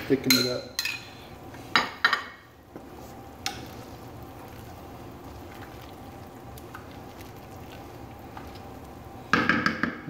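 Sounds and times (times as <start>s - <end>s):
stew bubbling in a pot: 2.4s - 10.0s
wooden spoon stirring: 2.7s - 9.3s
spoon knocking against pot: 9.3s - 10.0s.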